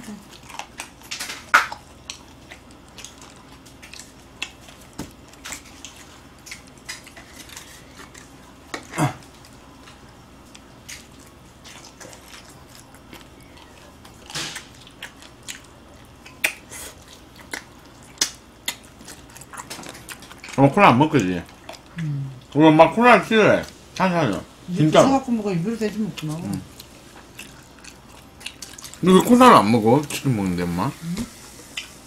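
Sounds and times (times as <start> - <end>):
mouth smacks: 16.3 - 18.8.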